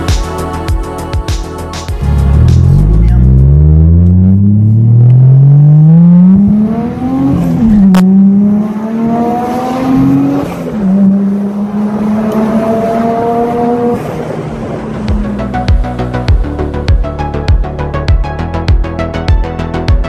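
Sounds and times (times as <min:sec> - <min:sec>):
car engine accelerating: 0:02.0 - 0:17.4.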